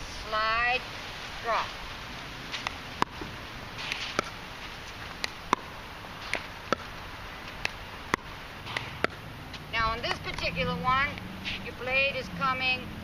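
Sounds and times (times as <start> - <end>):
ball bouncing on hard court: 2.5 - 10.5
paddle striking pickleball: 2.5 - 10.5.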